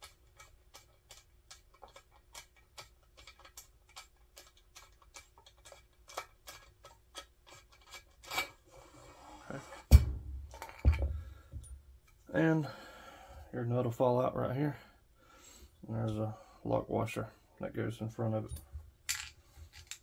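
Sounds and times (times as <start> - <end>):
stock scraping off tube: 0.3 - 11.4.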